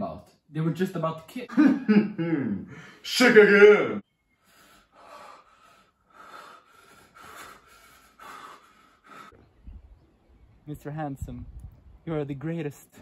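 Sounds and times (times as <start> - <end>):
person breathing quickly: 4.4 - 9.4.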